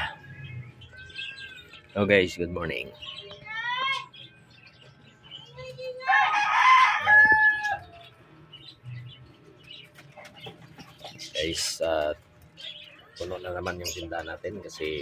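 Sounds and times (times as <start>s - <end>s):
rooster crowing: 6.0s - 8.2s.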